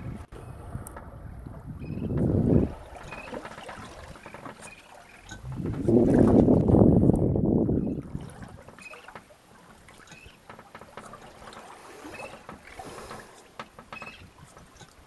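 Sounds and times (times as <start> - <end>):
water lapping against boat hull: 0.0 - 15.0
faint short squeaks: 8.8 - 9.2, 10.0 - 11.3, 11.9 - 15.0.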